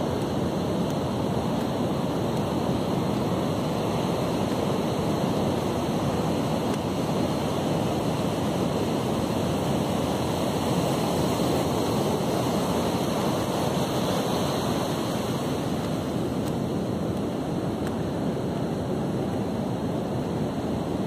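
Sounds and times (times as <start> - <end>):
waves breaking on beach: 0.0 - 21.0.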